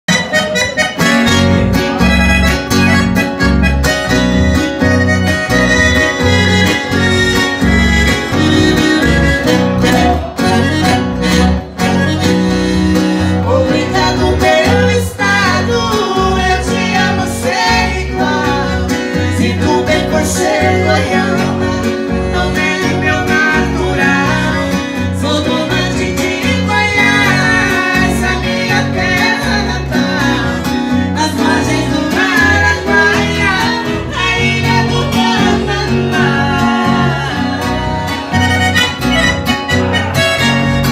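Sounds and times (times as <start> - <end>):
acoustic guitar: 0.0 - 40.9
accordion: 0.1 - 40.9
electric bass: 0.1 - 40.9
man and woman singing: 13.4 - 38.4.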